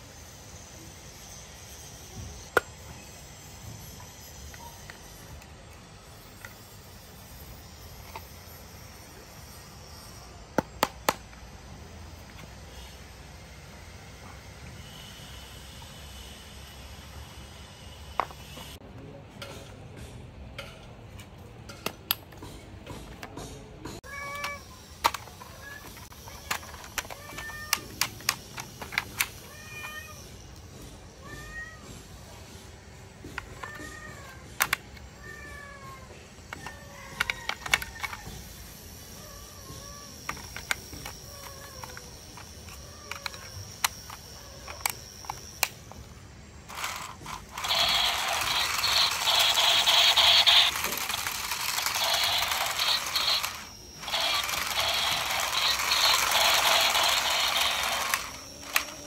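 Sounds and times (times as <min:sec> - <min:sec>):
plastic toy clicks and snaps: 0:24.4 - 0:29.4, 0:34.6 - 0:35.1, 0:36.6 - 0:38.2, 0:40.3 - 0:46.0, 0:46.7 - 0:59.0.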